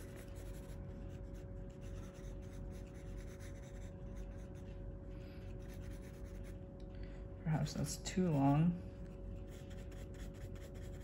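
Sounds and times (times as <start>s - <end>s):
pencil scratching on paper: 0.0s - 4.6s, 5.6s - 6.6s, 9.4s - 11.0s
faint steady hum: 0.0s - 11.0s.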